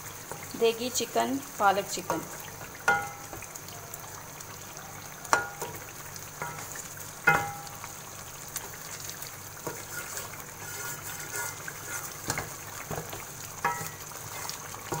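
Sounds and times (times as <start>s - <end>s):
chicken sizzling in a pan: 0.0s - 15.0s
spatula knocking on a pan: 2.9s - 3.5s, 7.3s - 7.7s, 12.3s - 14.0s
spatula scraping a pan: 6.4s - 7.6s, 9.6s - 15.0s.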